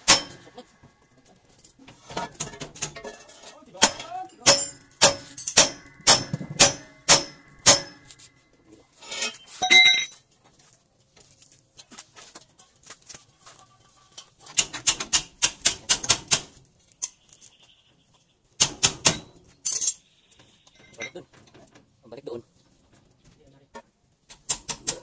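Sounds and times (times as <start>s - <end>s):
hammer striking metal: 0.0s - 0.5s, 3.8s - 8.2s
metal clatter with ringing: 1.5s - 8.1s.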